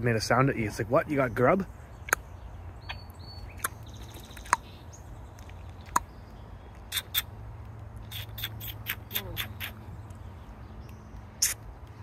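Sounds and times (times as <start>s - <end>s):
quick high clicks: 6.9s - 7.3s, 11.4s - 11.6s.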